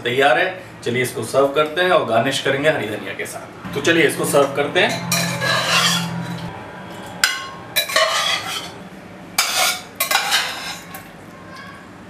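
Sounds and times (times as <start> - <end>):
spoon scraping pressure cooker: 4.9 - 6.5, 7.8 - 8.8.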